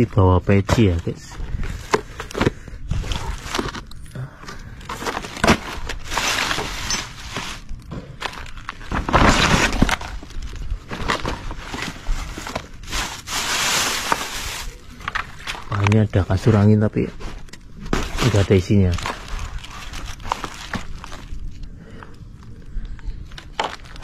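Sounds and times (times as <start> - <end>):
plastic bags and paper rustling: 0.0 - 24.0.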